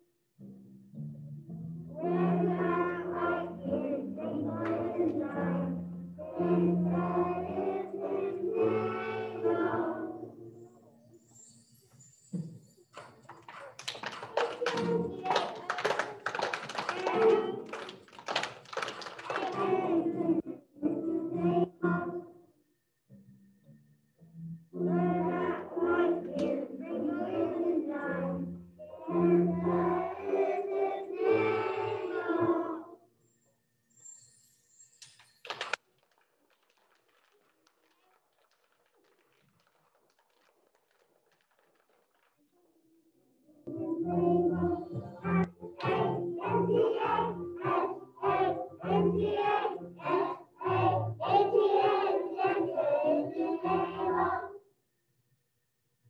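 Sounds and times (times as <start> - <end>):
children singing together: 2.0 - 10.5, 14.4 - 17.9, 19.1 - 22.4, 24.8 - 33.0, 43.7 - 54.6
backing track music: 43.7 - 53.8.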